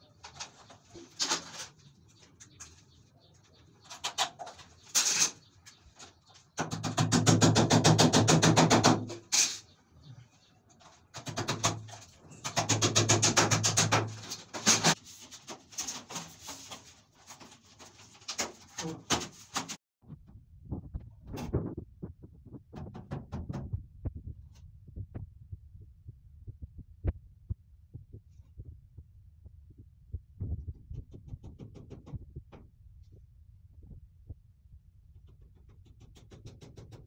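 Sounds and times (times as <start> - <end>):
tool scraping plastic wall panel: 10.8 - 19.8.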